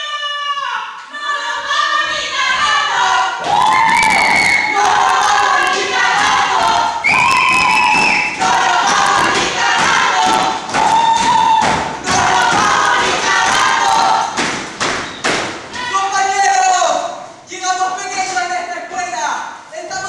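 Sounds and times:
group of voices singing: 0:01.0 - 0:14.6.

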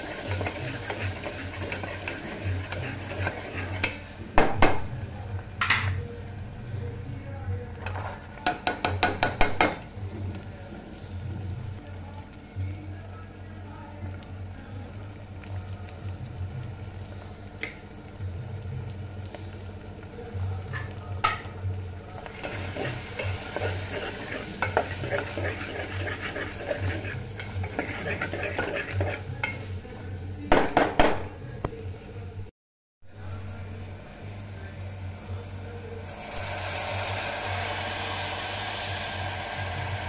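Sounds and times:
spoon stirring frying vegetables: 0:00.0 - 0:05.1, 0:22.1 - 0:30.3
scraping and sizzling: 0:00.0 - 0:06.2, 0:22.1 - 0:30.5, 0:33.1 - 0:40.0.

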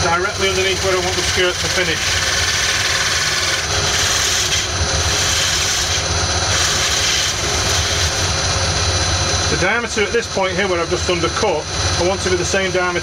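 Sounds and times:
lathe motor hum: 0:00.0 - 0:13.0
tool cutting spinning wood: 0:00.0 - 0:13.0.

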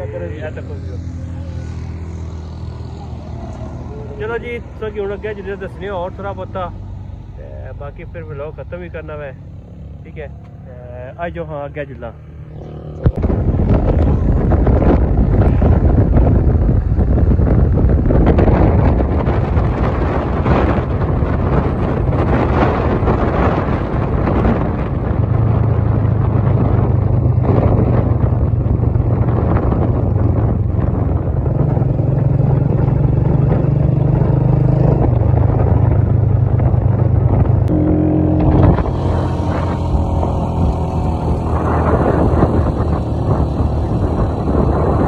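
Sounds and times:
vehicle engine running: 0:00.0 - 0:23.3, 0:34.3 - 0:45.0
road and wind noise: 0:00.0 - 0:45.0.

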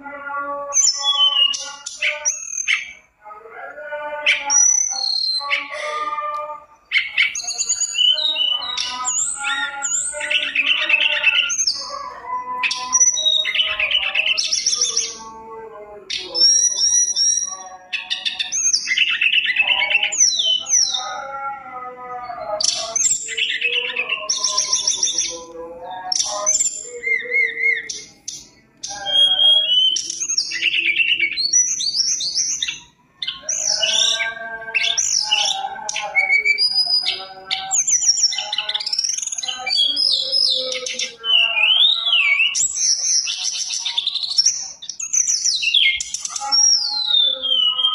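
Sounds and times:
bird singing fluty whistles: 0:07.0 - 0:11.9, 0:26.2 - 0:47.9.

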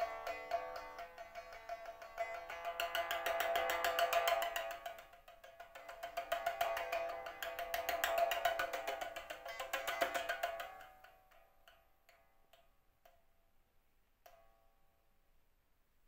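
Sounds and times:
pipa rapid plucking: 0:00.0 - 0:12.7
soft single pipa plucks: 0:00.0 - 0:13.2.

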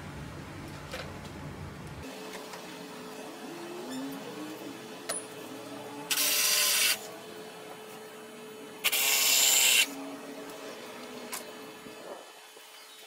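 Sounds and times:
handheld power tool running: 0:02.0 - 0:12.4.

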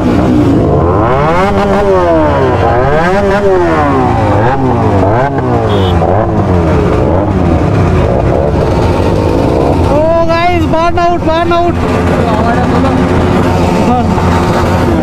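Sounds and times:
motorcycle engines revving: 0:00.0 - 0:15.0
high-pitched beep: 0:05.7 - 0:06.0.

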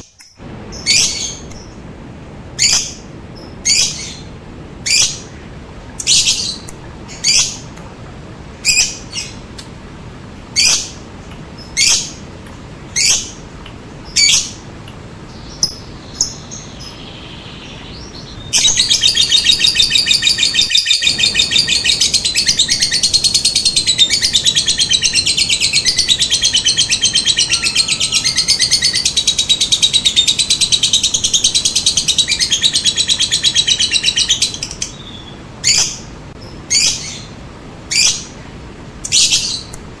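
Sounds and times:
bird chirping: 0:00.0 - 0:01.9, 0:02.5 - 0:07.9, 0:08.6 - 0:09.7, 0:10.5 - 0:38.4
bird rapid chattering trill: 0:18.5 - 0:35.9.

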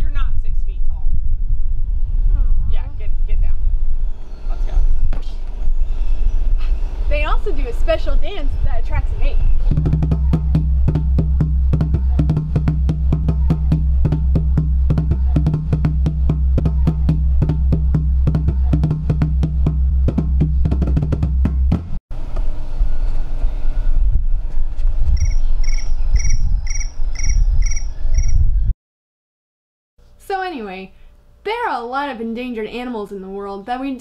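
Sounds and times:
music with drum beat and bass: 0:09.7 - 0:22.0
high chirp: 0:25.2 - 0:28.5.

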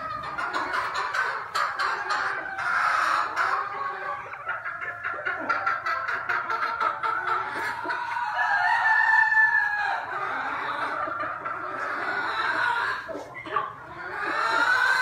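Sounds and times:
chickens clucking: 0:00.0 - 0:15.0
rooster crowing: 0:08.3 - 0:10.1.

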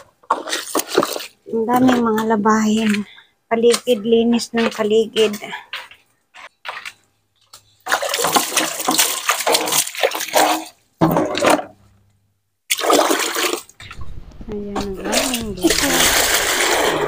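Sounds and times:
water pouring and splashing: 0:00.0 - 0:03.1, 0:07.8 - 0:11.6, 0:12.7 - 0:17.0.

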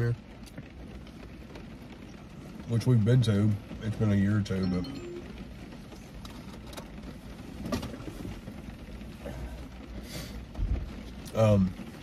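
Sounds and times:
rain on car roof: 0:00.0 - 0:12.0.

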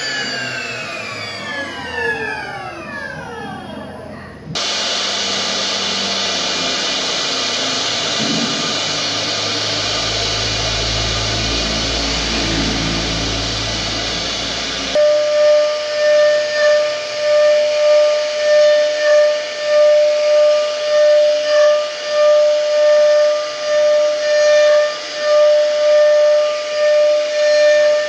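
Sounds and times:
router cutting wood hiss: 0:00.0 - 0:03.8, 0:04.5 - 0:28.0
low hum: 0:00.0 - 0:15.4
high pulsing whine: 0:00.0 - 0:26.5.

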